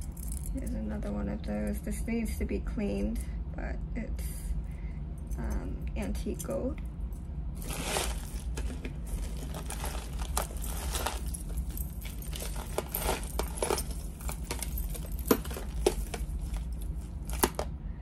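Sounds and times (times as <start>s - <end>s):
metal jewelry clinking: 0.0s - 1.1s, 5.2s - 17.8s.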